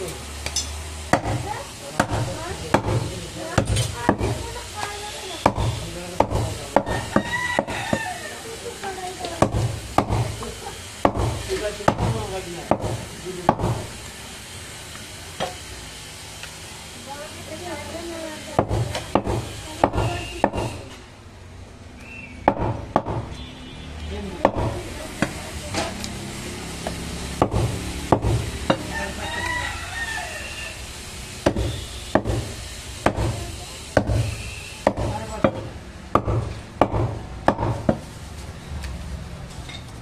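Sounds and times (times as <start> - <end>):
cleaver chopping on wooden block: 1.1 - 1.4, 2.0 - 4.4, 5.4 - 8.2, 9.4 - 10.4, 11.0 - 13.9, 18.6 - 20.8, 22.4 - 23.3, 24.4 - 25.4, 26.8 - 29.0, 31.4 - 38.0.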